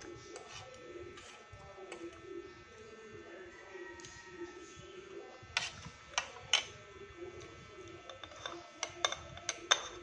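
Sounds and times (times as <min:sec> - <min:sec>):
faint steady hum: 0:00.0 - 0:10.0
cutlery clinking against plate: 0:05.6 - 0:06.8, 0:08.0 - 0:10.0.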